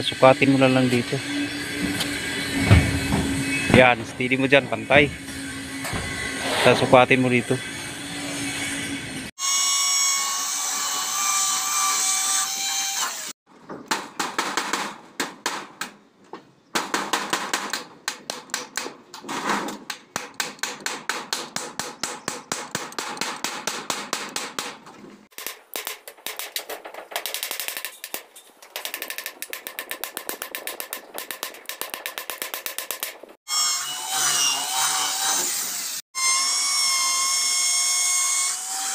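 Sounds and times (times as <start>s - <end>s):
claw hammer tapping rapidly: 25.4s - 33.2s.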